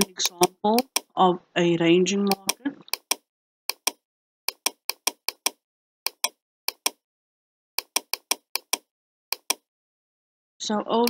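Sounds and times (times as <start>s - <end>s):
computer mouse clicking: 0.0s - 1.1s, 2.3s - 7.0s, 7.8s - 9.6s.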